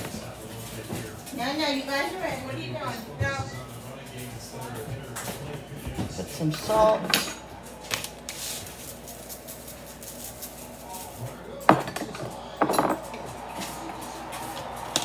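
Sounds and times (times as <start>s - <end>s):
dishes clattering: 6.0s - 7.5s, 11.6s - 13.3s.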